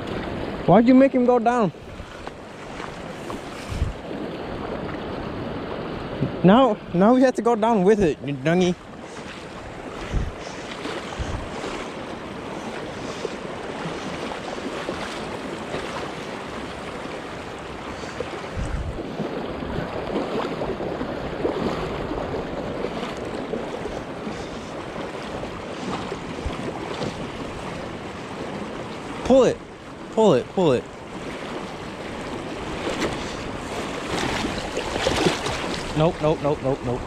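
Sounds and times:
river water rushing: 0:00.0 - 0:37.0
wind noise on microphone: 0:03.0 - 0:06.5, 0:09.6 - 0:11.8, 0:18.4 - 0:24.8, 0:25.4 - 0:28.0.

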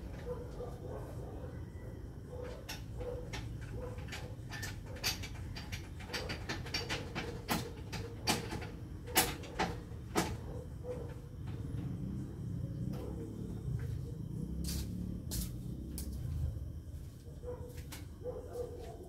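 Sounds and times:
irregular sharp clicks and knocks: 0:02.7 - 0:10.4.

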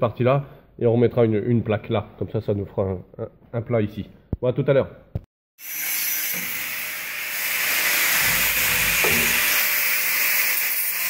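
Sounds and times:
angle grinder cutting steel: 0:05.6 - 0:11.0.

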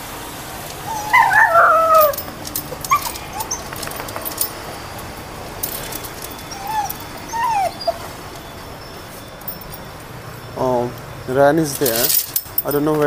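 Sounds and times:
dog yipping: 0:00.8 - 0:04.6, 0:06.0 - 0:08.8
dog whining: 0:00.8 - 0:04.7, 0:05.6 - 0:09.7
light clicks and clinks: 0:01.1 - 0:10.2, 0:10.9 - 0:13.0.

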